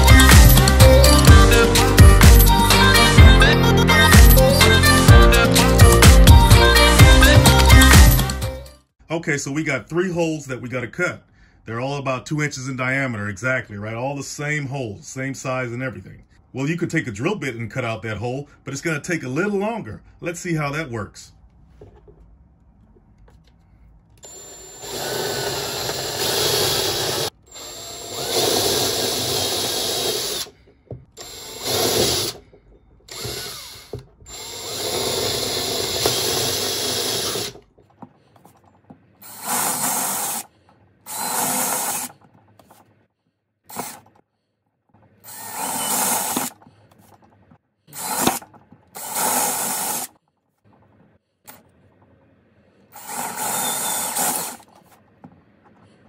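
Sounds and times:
cordless drill boring into wood: 24.2 - 30.6, 31.2 - 32.5, 33.1 - 37.6, 39.2 - 40.5, 41.1 - 42.2, 43.7 - 44.1, 45.2 - 46.6, 48.0 - 50.1, 53.0 - 54.7.

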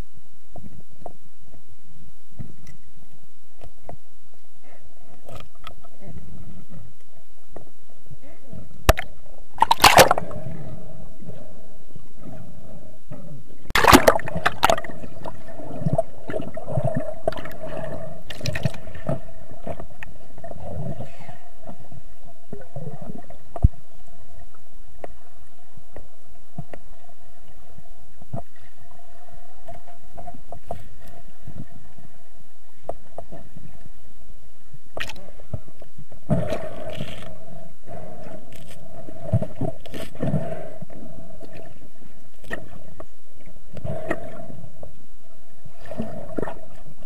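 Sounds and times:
underwater hum: 0.0 - 47.0
bubbling and gurgling: 8.9 - 11.4, 13.7 - 21.2.

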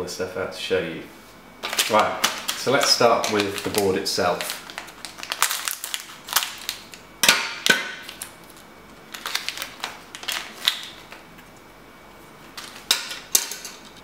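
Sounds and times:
plastic bag crinkling: 1.6 - 7.1, 7.9 - 11.6, 12.4 - 14.0
plastic bag snap: 1.6 - 11.2.

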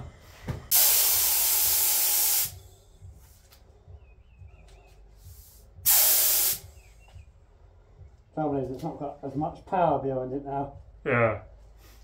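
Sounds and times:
spray gun hissing: 0.7 - 2.6, 5.3 - 6.7.

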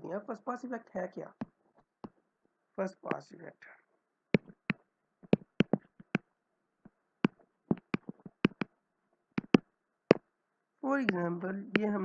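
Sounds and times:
stylus tapping on tablet screen: 1.4 - 2.2, 4.4 - 6.3, 7.2 - 8.7, 9.4 - 10.3.

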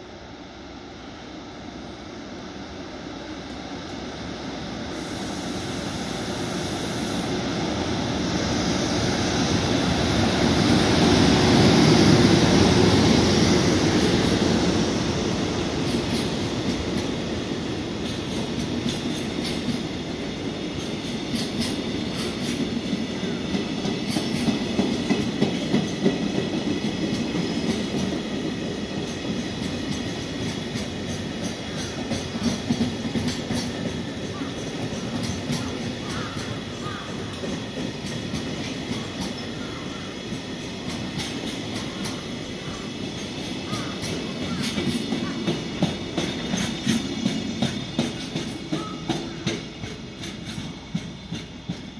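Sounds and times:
freight train passing: 0.0 - 51.9
wheels clacking over rail joints: 23.5 - 51.9.

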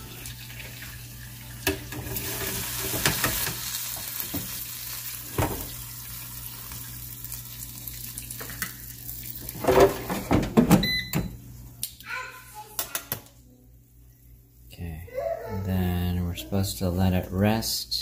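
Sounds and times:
steak sizzling in air fryer: 0.0 - 11.2.

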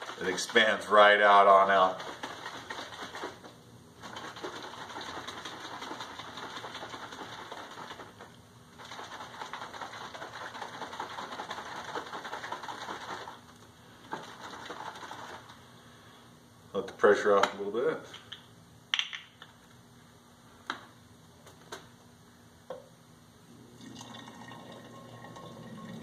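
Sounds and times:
water sloshing in shaken plastic jug: 0.0 - 13.4, 14.1 - 15.6.

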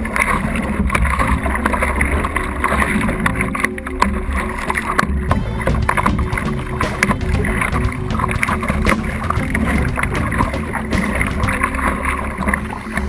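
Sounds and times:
paddle splashes and knocks: 0.0 - 13.0
water rushing and slapping: 0.0 - 13.0.

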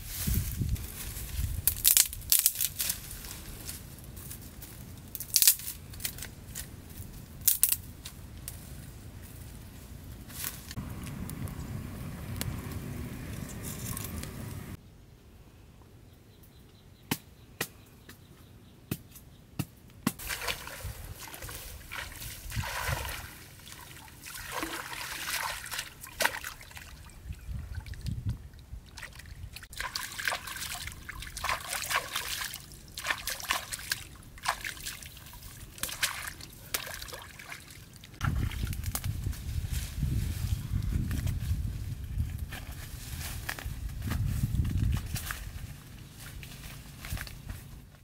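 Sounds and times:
water splashing and sloshing: 20.2 - 39.0.

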